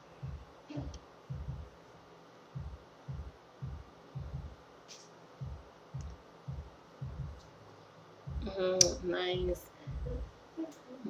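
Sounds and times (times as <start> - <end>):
low dull thumps: 0.0 - 1.7, 2.6 - 4.6, 5.4 - 7.4, 8.3 - 10.4.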